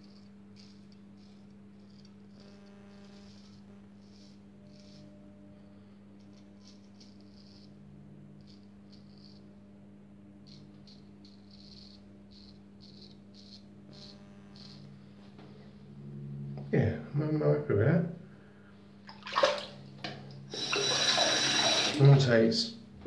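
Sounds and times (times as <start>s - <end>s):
razor shaving stubble: 0.0s - 5.2s, 6.2s - 9.5s, 10.4s - 15.0s, 20.5s - 22.1s.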